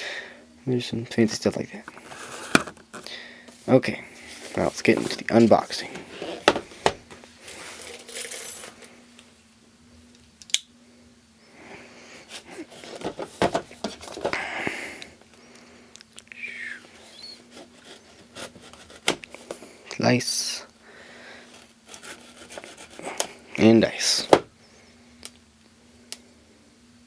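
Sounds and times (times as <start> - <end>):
cardboard box rustling: 1.9 - 3.0.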